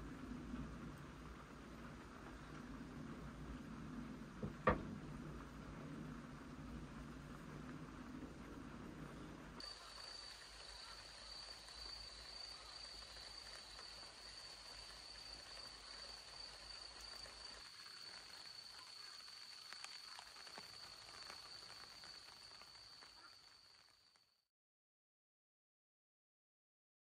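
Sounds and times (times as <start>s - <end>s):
high-pitched insect trill: 9.6s - 24.2s.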